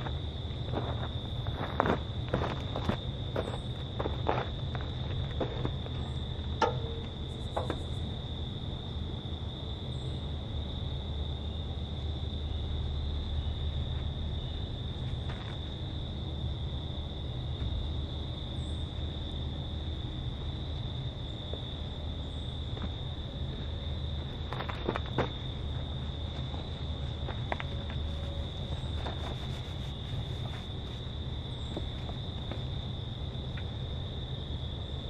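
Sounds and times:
crickets chirping: 0:00.0 - 0:35.0.

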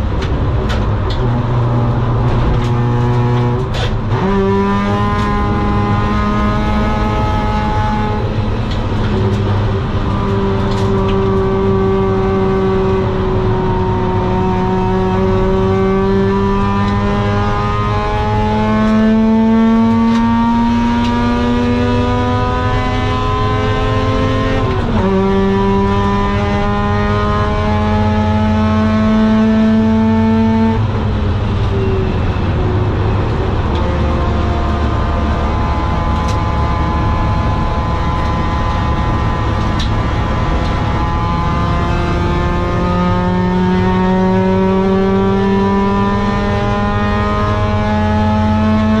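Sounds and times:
rotary engine at full throttle: 0:00.0 - 0:49.0.

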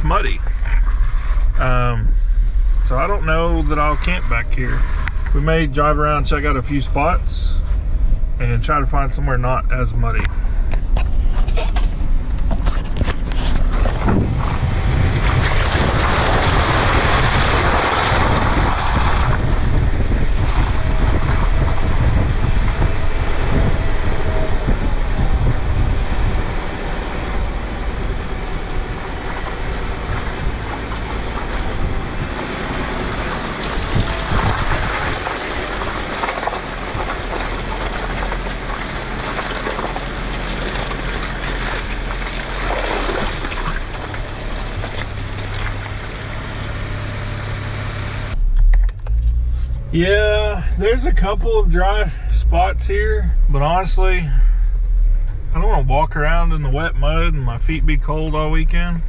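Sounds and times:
tyres through mud and puddles: 0:00.0 - 0:59.0
wind noise on microphone: 0:10.2 - 0:46.0.

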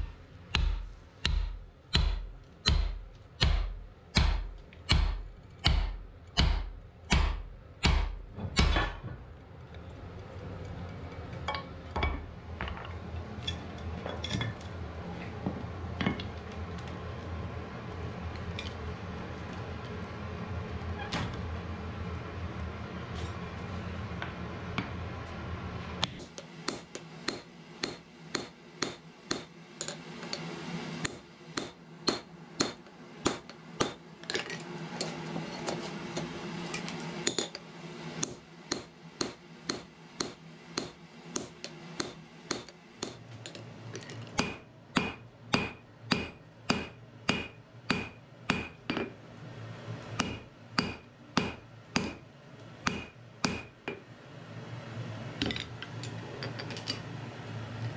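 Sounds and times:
hammer striking metal on anvil: 0:00.0 - 0:09.0, 0:26.0 - 0:36.3, 0:38.2 - 0:43.6, 0:44.4 - 0:49.1, 0:50.2 - 0:52.2, 0:52.8 - 0:53.8.

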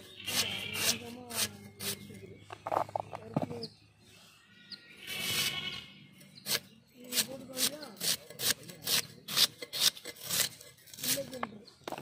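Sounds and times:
onion rasping on blade: 0:00.0 - 0:02.0, 0:05.0 - 0:11.4.

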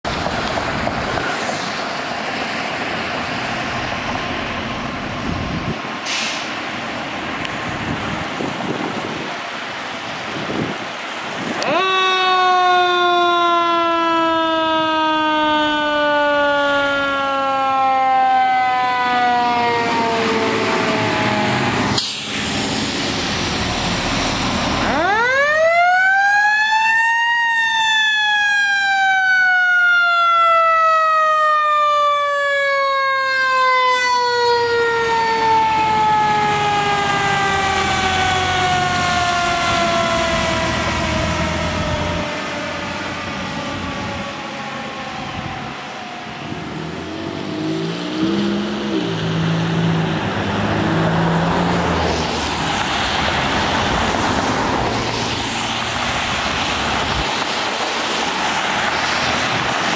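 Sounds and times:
mechanical siren wailing: 0:11.6 - 0:22.0, 0:24.8 - 0:47.4.

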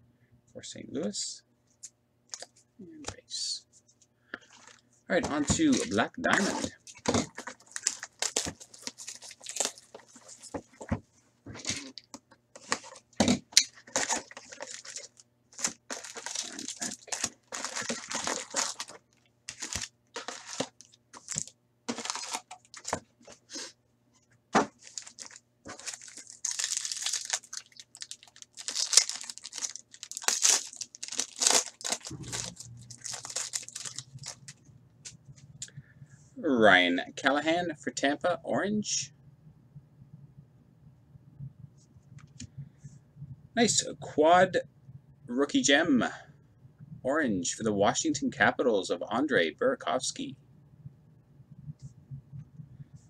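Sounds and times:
foil packs crinkling: 0:04.4 - 0:10.5, 0:13.7 - 0:23.6, 0:24.7 - 0:34.6
foil packs ripping: 0:05.5 - 0:10.1, 0:13.8 - 0:23.0, 0:24.7 - 0:34.5.

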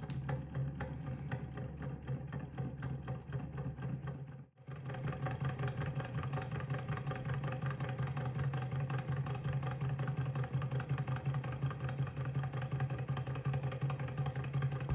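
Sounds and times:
model engine rhythmic clatter: 0:00.0 - 0:14.9.

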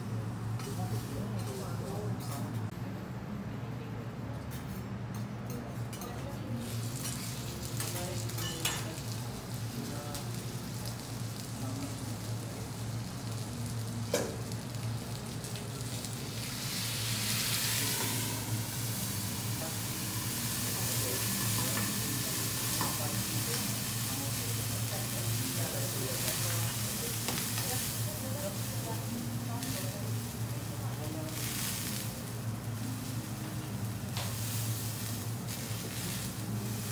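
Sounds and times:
lobster sizzling on a griddle: 0:00.4 - 0:01.9, 0:06.5 - 0:36.9
steady low hum: 0:09.2 - 0:31.4.

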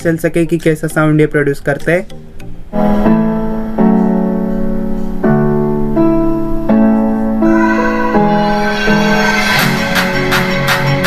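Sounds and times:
slow keyboard melody through speaker: 0:02.0 - 0:11.0.

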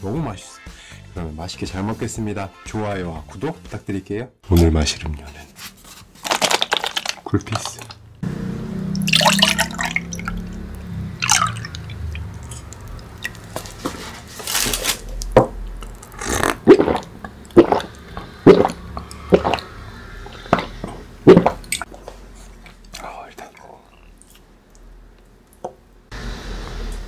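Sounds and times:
drink pouring into mug: 0:09.0 - 0:10.5, 0:11.2 - 0:13.6
swallowing gulps: 0:16.1 - 0:21.9.

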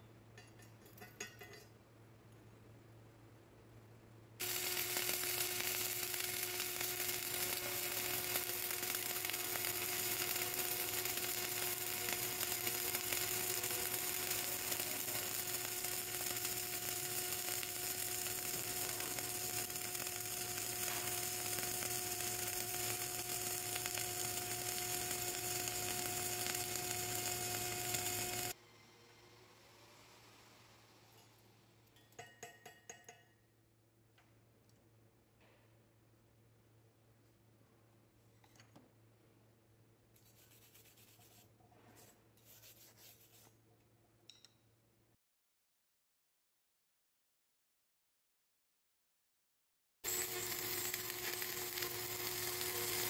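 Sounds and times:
welding arc crackling: 0:04.4 - 0:28.6, 0:50.0 - 0:53.0.

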